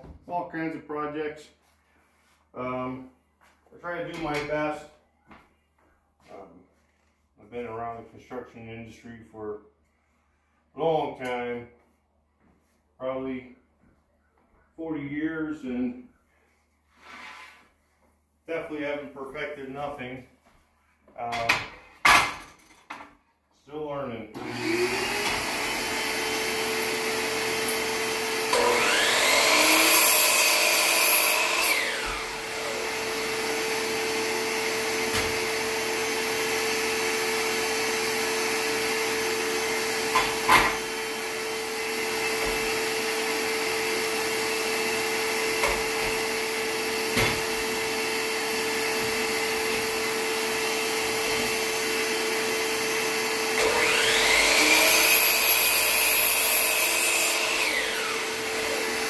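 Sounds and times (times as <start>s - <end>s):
shop vacuum running: 24.3s - 59.0s
miter saw cutting wood: 24.4s - 59.0s.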